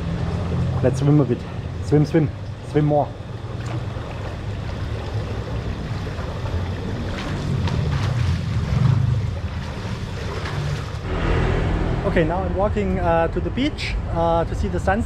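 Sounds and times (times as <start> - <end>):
water splashing from swimming: 3.2 - 11.1.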